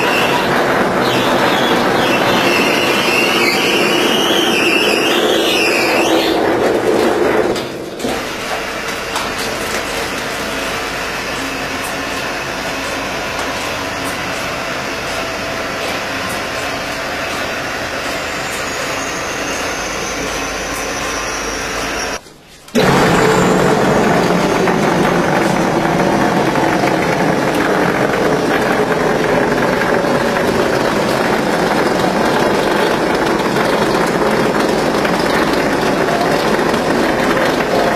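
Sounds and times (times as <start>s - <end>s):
wavering high whine: 0.0s - 6.6s, 11.2s - 22.2s
plastering machine rumble: 0.0s - 37.9s.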